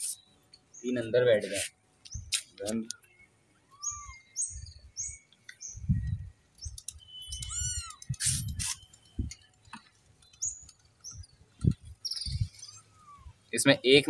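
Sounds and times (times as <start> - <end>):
small birds chirping: 0.0 - 14.0
kitten meowing: 3.7 - 4.2, 7.4 - 8.1, 12.7 - 13.4.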